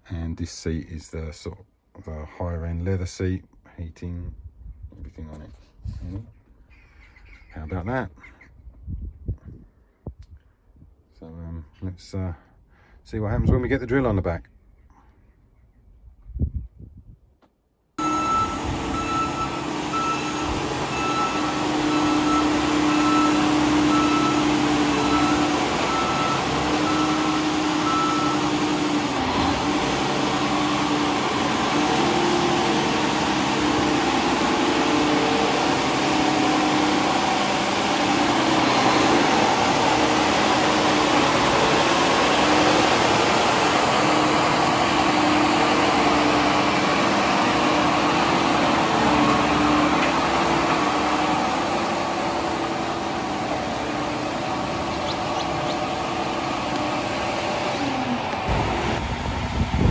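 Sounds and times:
regular beeping: 18.0s - 28.8s
tractor diesel engine running: 18.0s - 59.9s.

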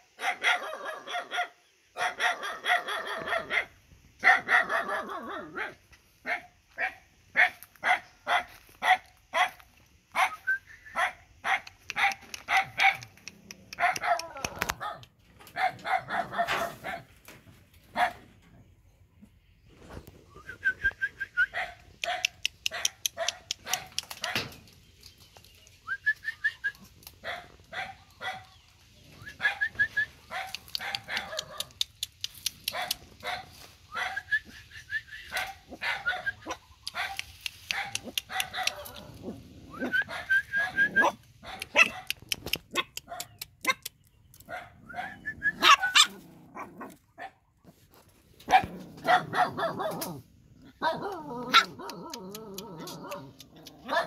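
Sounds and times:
puppies barking: 0.2s - 9.6s, 11.0s - 17.1s, 21.5s - 24.6s, 27.2s - 28.5s, 29.3s - 31.9s, 35.3s - 47.4s, 48.4s - 54.0s
puppies yelping and whining: 38.6s - 41.2s, 44.8s - 47.0s.

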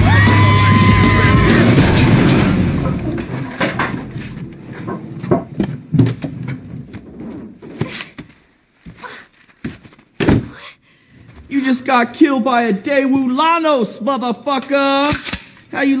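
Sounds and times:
low rumble: 0.0s - 5.4s
debris knocking and clattering: 0.3s - 8.4s.

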